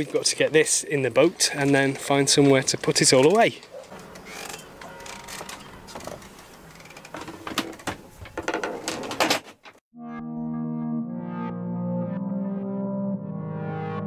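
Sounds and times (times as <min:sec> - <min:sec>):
soft synthesizer music: 0:10.0 - 0:14.0.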